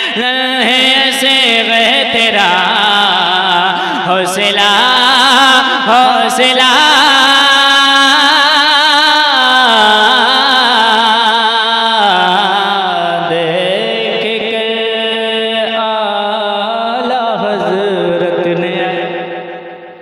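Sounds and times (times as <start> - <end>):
man singing with vibrato: 0.0 - 20.0.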